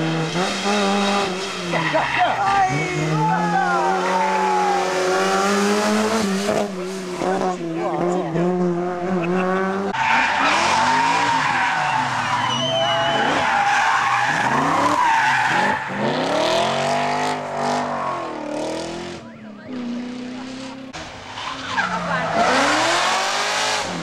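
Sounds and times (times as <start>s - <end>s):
rally car engine revving: 0.0s - 24.0s
tyres squealing: 10.0s - 16.0s.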